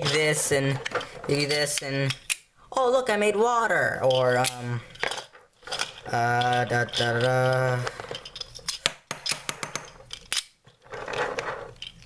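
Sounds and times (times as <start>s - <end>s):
plastic balls clicking together: 4.0s - 12.0s.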